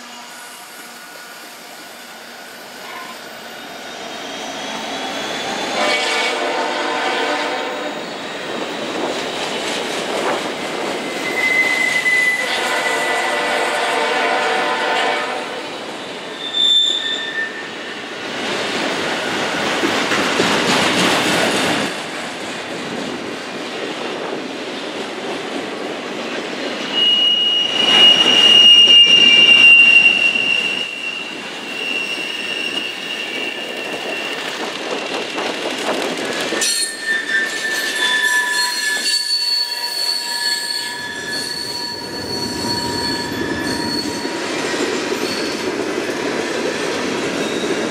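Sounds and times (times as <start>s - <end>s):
wheel squeal: 0.0s - 5.8s, 10.9s - 13.0s, 16.2s - 18.1s, 26.9s - 35.5s, 36.3s - 45.7s, 47.4s - 47.9s
freight cars rattling on rails: 27.7s - 47.9s.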